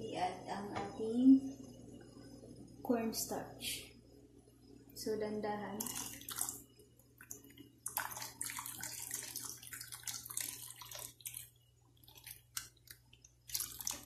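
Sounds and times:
liquid pouring and splashing into pot: 5.8s - 14.0s.

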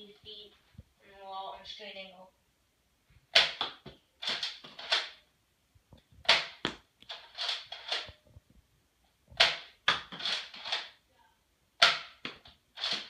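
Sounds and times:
toy dart blaster clacks and pops: 3.4s - 5.2s, 11.8s - 13.0s.

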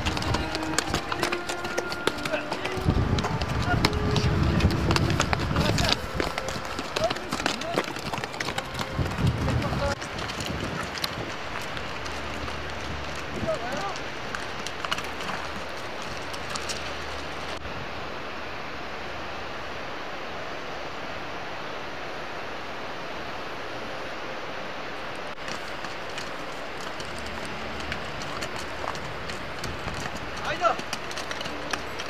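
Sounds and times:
hooves clattering on rocks: 0.0s - 17.6s, 25.4s - 32.0s
low wind rumble: 0.0s - 32.0s
mountain stream rushing: 0.0s - 32.0s.

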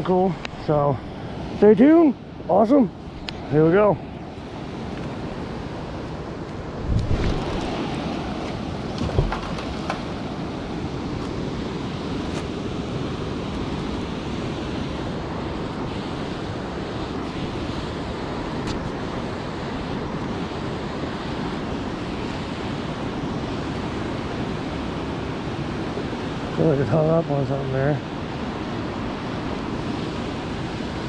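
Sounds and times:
wind on microphone: 3.1s - 26.6s.

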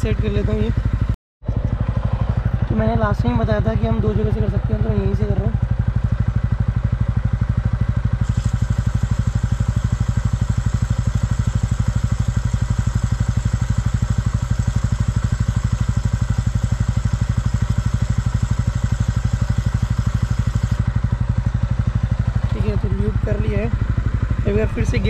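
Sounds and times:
motorcycle engine idling: 0.0s - 25.0s
aerosol can spraying: 8.2s - 13.8s, 18.0s - 20.8s.

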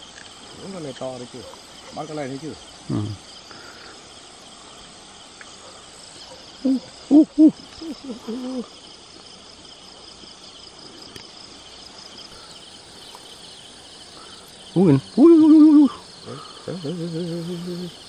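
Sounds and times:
crickets trilling: 0.0s - 18.0s
short low pitched calls: 14.6s - 18.0s.

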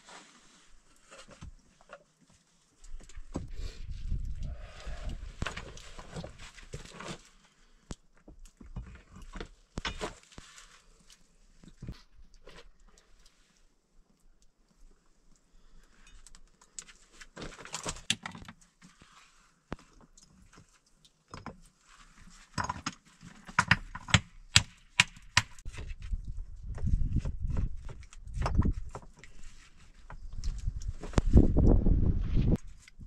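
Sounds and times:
heavy stones thudding and grinding: 23.5s - 29.1s.

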